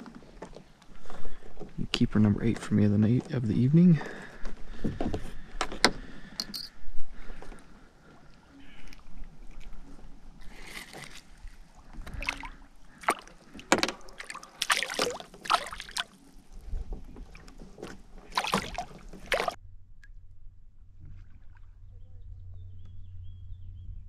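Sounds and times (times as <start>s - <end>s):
water splashing: 8.2s - 19.6s.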